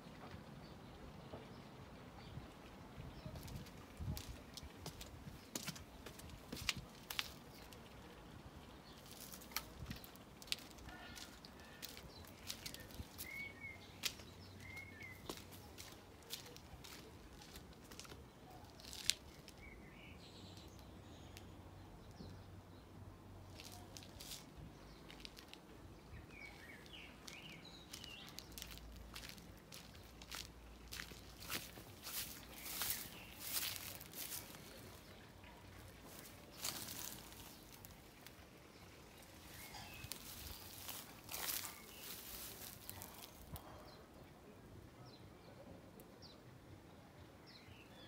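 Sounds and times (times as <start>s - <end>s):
birds chirping: 0.0s - 46.4s
footsteps crunching on path: 3.4s - 7.7s, 9.0s - 19.7s, 26.3s - 35.2s, 36.0s - 38.0s, 39.2s - 43.6s.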